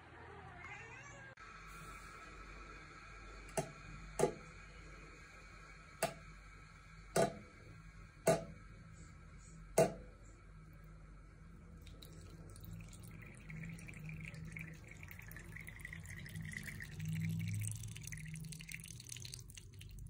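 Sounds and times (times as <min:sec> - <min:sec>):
water dripping into sink: 0:11.8 - 0:20.0.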